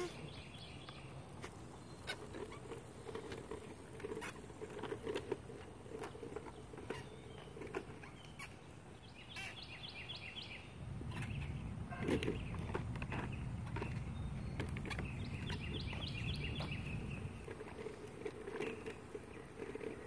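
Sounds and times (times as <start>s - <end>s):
tricycle wheels rumbling on concrete: 0.0s - 20.0s.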